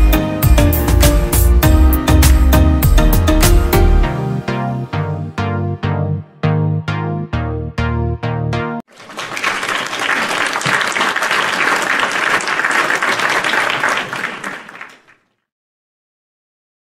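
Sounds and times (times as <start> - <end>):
crowd applauding: 8.9 - 15.3.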